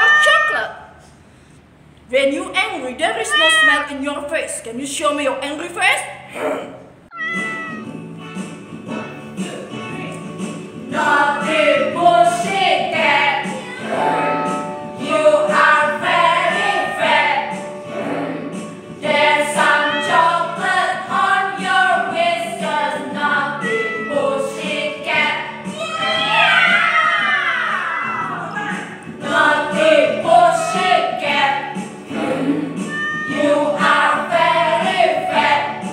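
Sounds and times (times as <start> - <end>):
women singing in unison: 10.9 - 25.7, 29.2 - 35.9.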